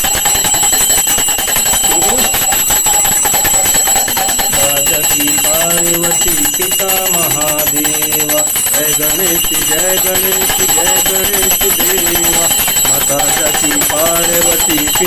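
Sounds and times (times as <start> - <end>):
hand bell ringing rapidly: 0.0 - 15.0
people singing: 3.8 - 15.0.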